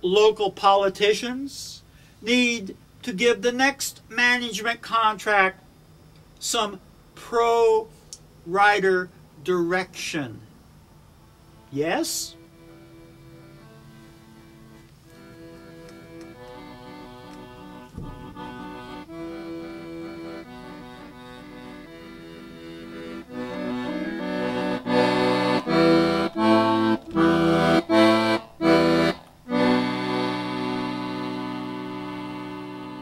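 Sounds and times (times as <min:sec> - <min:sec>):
instrumental music of held chords: 0:12.3 - 0:33.0
loud chord stabs: 0:12.4 - 0:33.0.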